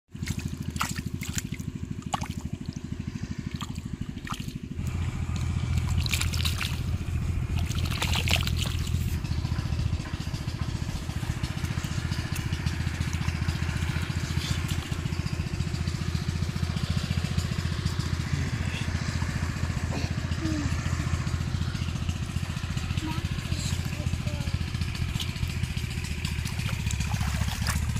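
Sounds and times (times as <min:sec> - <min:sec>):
fish flapping in water: 0:00.1 - 0:09.3, 0:10.8 - 0:15.8, 0:25.0 - 0:27.9
small engine running: 0:00.1 - 0:27.9
hands groping through water: 0:00.2 - 0:02.7, 0:05.7 - 0:09.2, 0:26.2 - 0:27.9.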